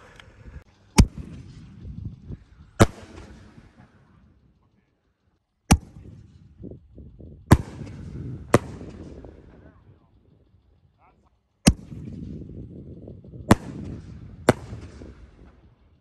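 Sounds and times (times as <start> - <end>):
firework shell bangs with echo: 13.5 - 15.2.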